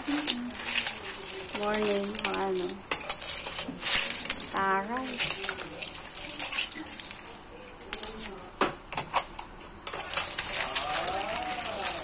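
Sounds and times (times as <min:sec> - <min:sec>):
shells clattering in metal pan: 0:00.0 - 0:08.4, 0:09.9 - 0:12.0
faint voice: 0:10.0 - 0:12.0.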